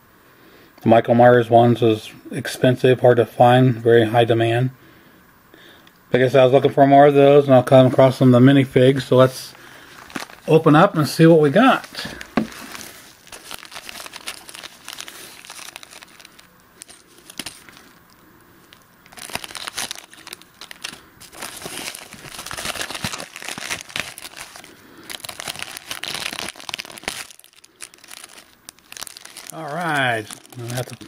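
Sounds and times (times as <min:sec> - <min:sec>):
paper and plastic crinkling: 0:09.8 - 0:31.0.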